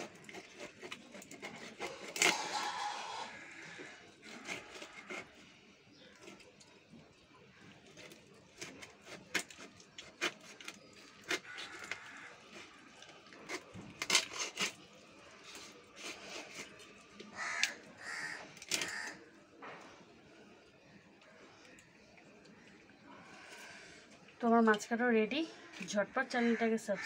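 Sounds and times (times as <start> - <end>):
blade cracking through fish bone: 0.0 - 2.6, 7.9 - 19.2
crow cawing: 2.3 - 4.1, 11.4 - 12.4, 17.3 - 19.3, 25.6 - 27.0.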